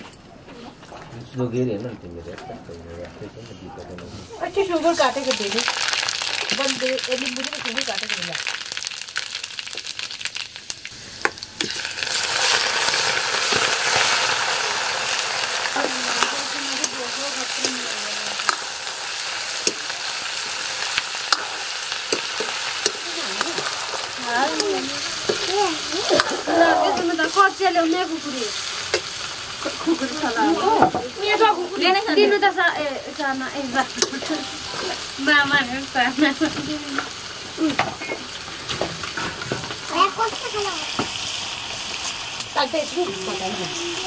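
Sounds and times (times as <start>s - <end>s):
chicken sizzling in oil: 4.6s - 44.0s
metal ladle scraping pan: 11.0s - 25.5s.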